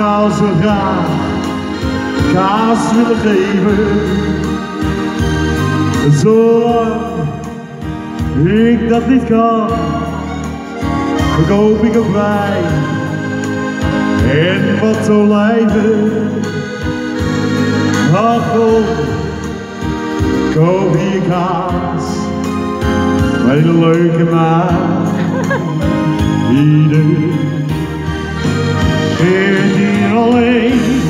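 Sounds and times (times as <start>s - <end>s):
organ-like keyboard chords: 0.0s - 31.0s
men singing through speaker: 2.1s - 4.5s, 26.4s - 27.8s, 29.1s - 31.0s.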